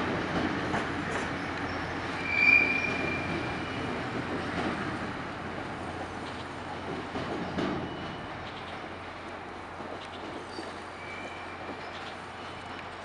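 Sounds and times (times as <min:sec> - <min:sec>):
train wheels rumbling on rail: 0:00.0 - 0:13.0
high-pitched wheel squeal: 0:02.1 - 0:03.8.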